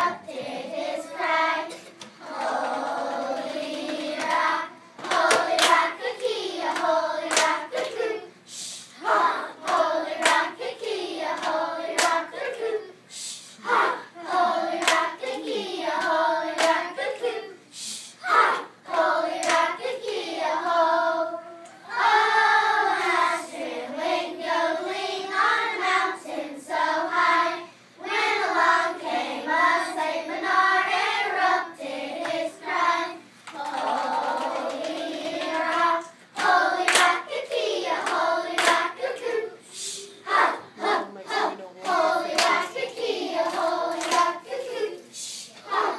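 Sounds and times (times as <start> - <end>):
sharp hand claps: 5.0 - 8.0, 9.7 - 10.5, 11.4 - 12.2, 14.8 - 15.1, 16.0 - 16.8, 19.4 - 19.7, 33.5 - 37.2, 38.0 - 38.9, 42.4 - 42.6, 43.5 - 44.3
children singing: 18.2 - 26.2, 45.6 - 45.9.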